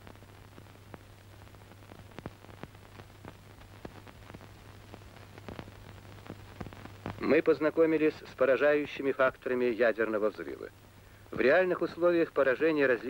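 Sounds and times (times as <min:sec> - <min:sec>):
crackling clicks: 0:00.0 - 0:07.4
low hum and hiss: 0:00.0 - 0:13.0.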